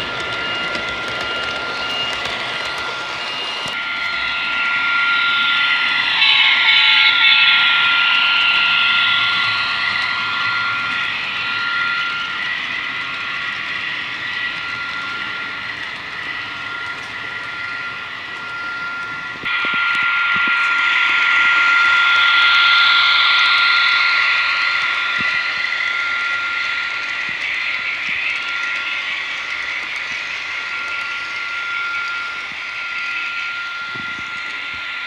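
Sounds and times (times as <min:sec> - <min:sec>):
wheels rolling on track: 0:00.0 - 0:04.2, 0:21.4 - 0:35.0
model train diesel engine sound: 0:00.0 - 0:35.0
steady high whine: 0:00.0 - 0:35.0.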